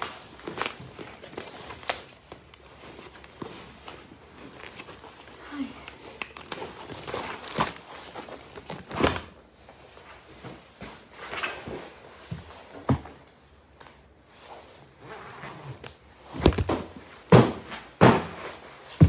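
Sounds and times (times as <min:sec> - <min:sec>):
handbag and coat rustling: 0:00.2 - 0:05.8, 0:16.2 - 0:16.9.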